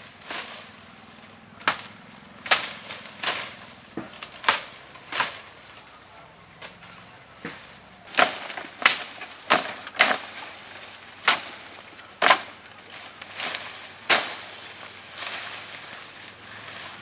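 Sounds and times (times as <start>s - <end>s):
blade chopping bamboo: 1.6s - 5.6s, 7.4s - 15.9s.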